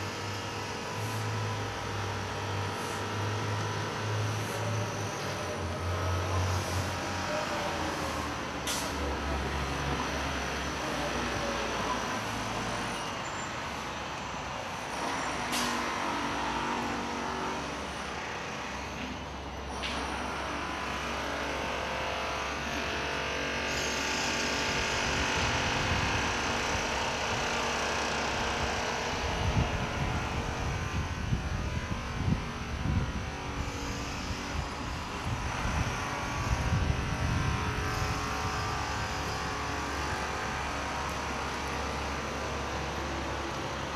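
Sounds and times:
street traffic passing: 0:00.0 - 0:43.9.

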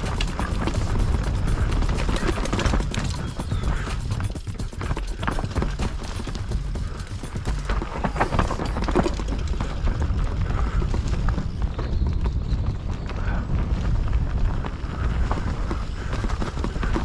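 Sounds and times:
bike clattering over rocks: 0:00.0 - 0:11.2
wind buffeting microphone: 0:00.0 - 0:17.0.

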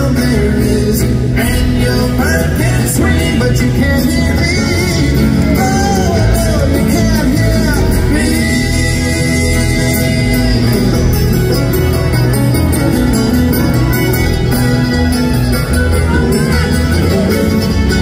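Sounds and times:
person singing: 0:00.0 - 0:12.2
bluegrass string band playing: 0:00.0 - 0:18.0.

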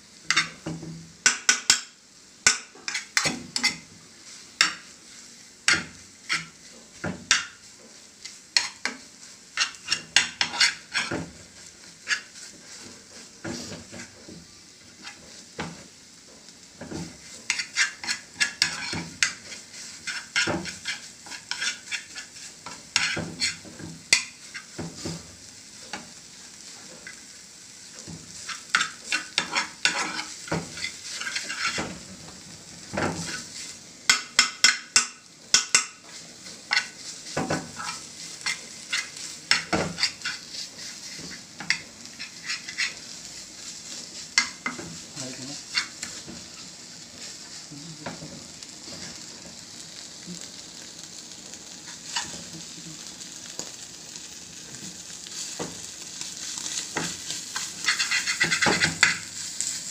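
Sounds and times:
frying pan sizzling: 0:00.0 - 0:59.9
metal spatula scraping frying pan: 0:08.6 - 0:11.2, 0:17.4 - 0:24.8, 0:28.4 - 0:32.0, 0:33.1 - 0:43.1, 0:51.9 - 0:52.4, 0:56.6 - 0:59.7.

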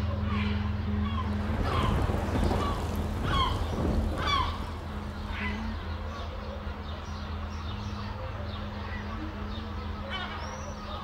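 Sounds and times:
birds calling: 0:00.2 - 0:07.2.

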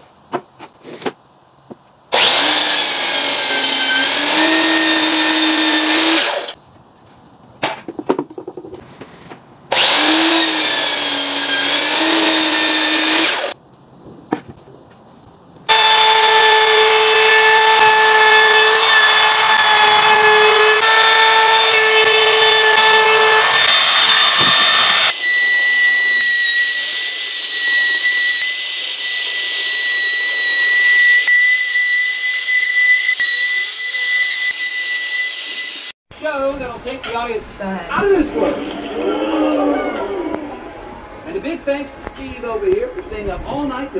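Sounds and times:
power tool motor whining: 0:09.7 - 0:13.6, 0:15.7 - 0:35.9.

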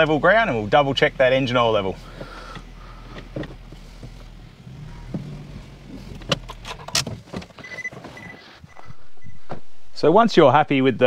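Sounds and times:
car engine idling: 0:00.0 - 0:11.0
car door clicks and knocks: 0:06.2 - 0:08.1
warning chime beeping: 0:07.6 - 0:09.4.

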